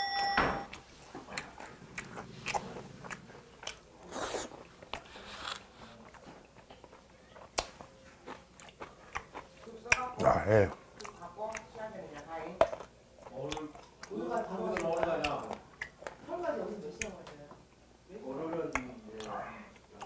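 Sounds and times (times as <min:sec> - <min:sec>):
person chewing food: 0:00.7 - 0:16.3
soft mouth sounds: 0:00.8 - 0:11.6.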